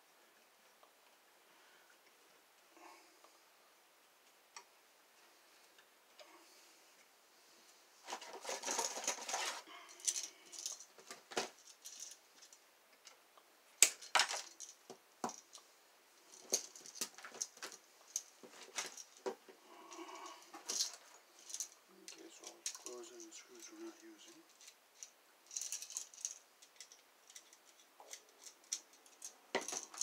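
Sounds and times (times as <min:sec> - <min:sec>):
tools rummaged in a box: 0:08.0 - 0:12.6, 0:16.3 - 0:19.3, 0:28.1 - 0:30.0
tools and wire clicking: 0:08.4 - 0:13.2, 0:24.4 - 0:30.0.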